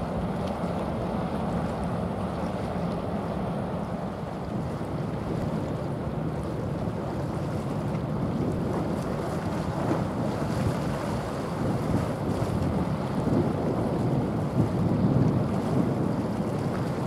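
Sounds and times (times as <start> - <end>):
water churned by propeller: 0.0 - 17.0
wind noise on microphone: 6.8 - 17.0.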